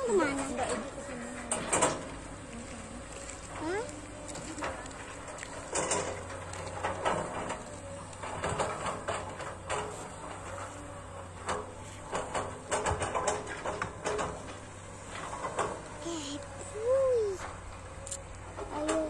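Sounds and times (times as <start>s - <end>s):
distant excavator diesel hum: 0.0s - 19.0s
sharp clicks and knocks: 1.4s - 2.4s, 3.4s - 10.8s, 11.4s - 16.4s.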